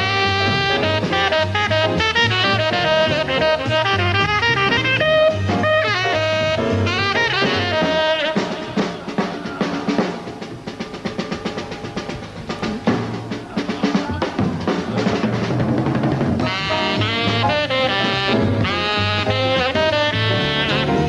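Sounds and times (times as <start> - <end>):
tenor saxophone line: 0.0 - 10.4, 16.4 - 21.0
cymbals: 0.0 - 21.0
jazz drum solo: 0.0 - 21.0.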